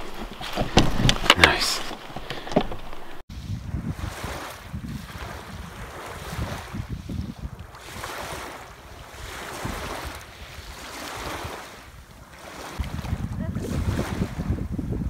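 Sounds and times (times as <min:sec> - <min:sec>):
small waves breaking: 0:03.0 - 0:15.0
wind buffeting microphone: 0:03.0 - 0:15.0.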